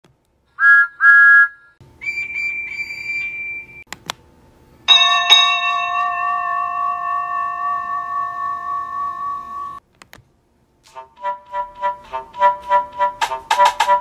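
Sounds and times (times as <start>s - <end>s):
train whistle toots: 0.6s - 3.8s, 10.9s - 14.0s
high steady whistle: 0.6s - 3.9s, 4.9s - 9.8s, 11.2s - 14.0s
loud ringing chord: 4.9s - 9.8s.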